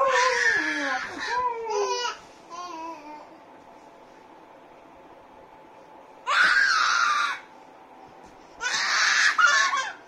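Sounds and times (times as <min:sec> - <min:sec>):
toddler shrieking: 0:00.0 - 0:02.2, 0:06.3 - 0:07.5, 0:08.6 - 0:10.0.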